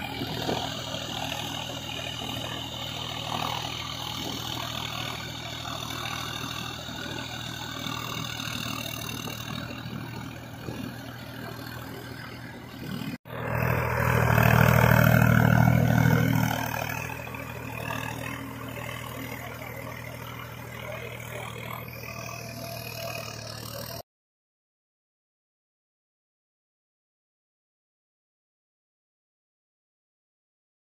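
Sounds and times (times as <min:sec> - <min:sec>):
rotovator churning wet soil: 0:00.0 - 0:24.0
tractor diesel engine running: 0:00.0 - 0:24.0.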